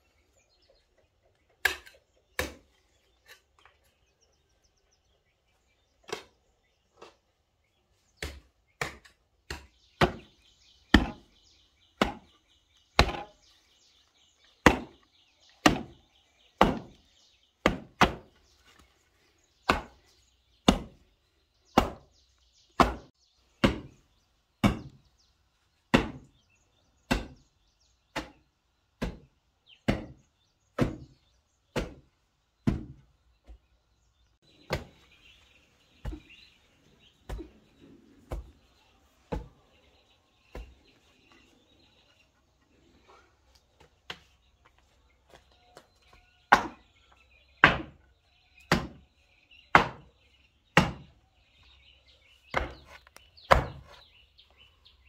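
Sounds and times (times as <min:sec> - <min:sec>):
machete chopping: 0:01.6 - 0:02.7, 0:08.2 - 0:10.3, 0:10.9 - 0:11.2, 0:12.0 - 0:12.3, 0:13.0 - 0:13.3, 0:14.6 - 0:15.0, 0:15.6 - 0:15.9, 0:16.6 - 0:17.0, 0:17.6 - 0:18.3, 0:19.7 - 0:20.0, 0:20.6 - 0:21.0, 0:21.7 - 0:22.1, 0:22.8 - 0:23.9, 0:24.6 - 0:25.0, 0:25.9 - 0:26.3, 0:27.1 - 0:27.4, 0:28.1 - 0:28.4, 0:29.0 - 0:30.2, 0:30.8 - 0:31.1, 0:31.7 - 0:33.0, 0:34.7 - 0:35.0, 0:46.5 - 0:46.8, 0:47.6 - 0:48.0, 0:48.7 - 0:49.0, 0:49.7 - 0:50.1, 0:50.8 - 0:51.1, 0:52.5 - 0:52.9, 0:53.5 - 0:53.9.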